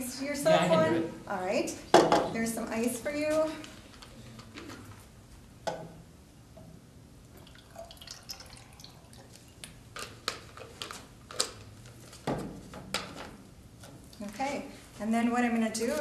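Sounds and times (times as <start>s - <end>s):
liquid pouring into a glass: 7.3s - 9.6s.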